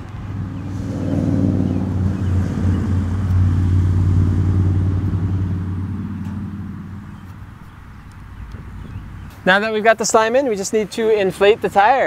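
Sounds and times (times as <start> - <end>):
engine droning: 0.0 - 9.6.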